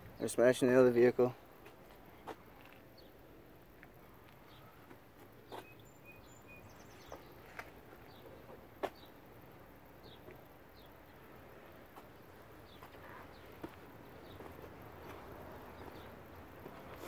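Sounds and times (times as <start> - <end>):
high bird chirps: 5.5 - 7.4.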